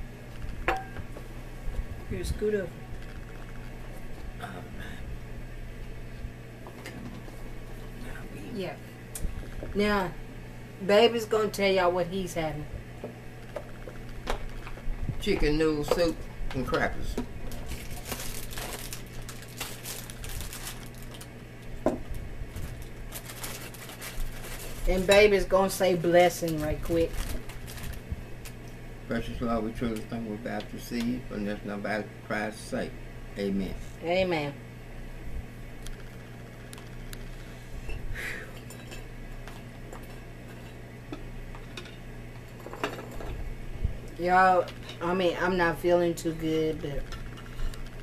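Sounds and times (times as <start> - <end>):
steady low hum: 0.0 - 48.0
plastic wrapper crinkling: 17.5 - 21.3, 22.6 - 25.0, 26.4 - 28.6.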